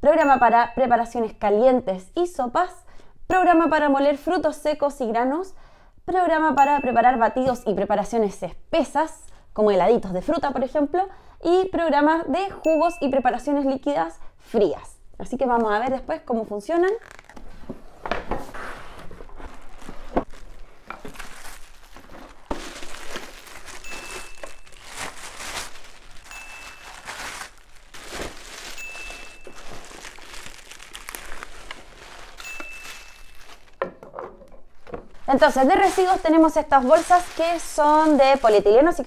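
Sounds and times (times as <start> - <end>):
plastic bags crinkling: 16.9 - 17.4, 19.2 - 34.0, 34.7 - 39.0
knocks and clicks of handled parts: 33.8 - 35.1.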